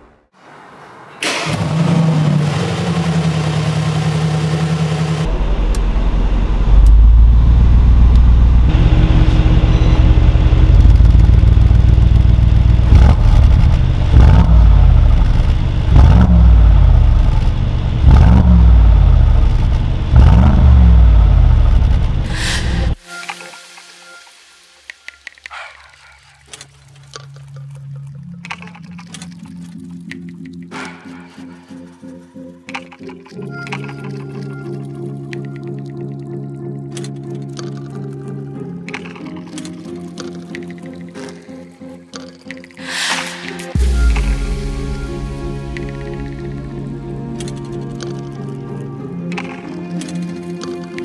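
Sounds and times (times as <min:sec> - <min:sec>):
car engine starting: 0:00.5 - 0:23.0, 0:42.9 - 0:51.0
car engine idling: 0:01.2 - 0:23.0
car engine revving: 0:01.2 - 0:23.0.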